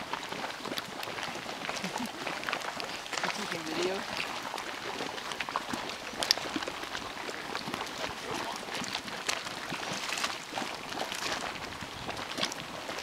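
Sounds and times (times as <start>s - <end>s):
mud bubbling and plopping: 0.0s - 13.0s.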